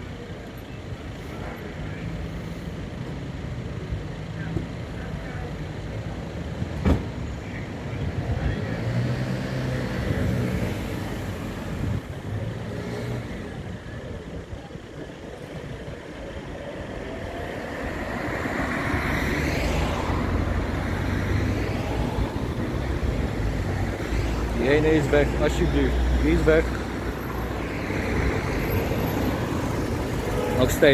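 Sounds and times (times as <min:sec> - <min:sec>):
car engines running: 0:00.0 - 0:30.9.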